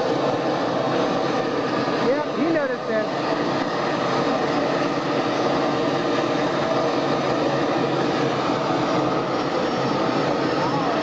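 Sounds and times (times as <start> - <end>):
jet engine running: 0.0 - 11.0.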